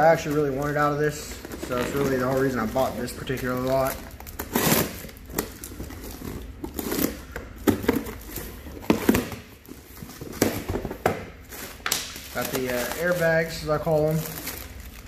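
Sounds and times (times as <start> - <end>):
tape and cardboard ripping: 1.6 - 10.9.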